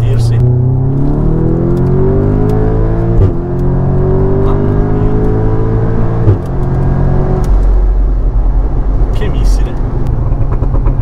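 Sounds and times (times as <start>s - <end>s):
car engine accelerating: 0.0s - 11.0s
gear shift crack: 0.7s - 4.3s, 5.1s - 7.9s.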